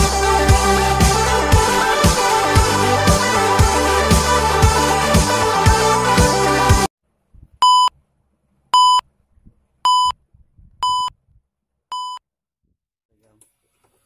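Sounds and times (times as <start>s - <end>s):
short electronic beeps: 7.6s - 7.9s, 9.9s - 10.2s, 10.8s - 11.1s.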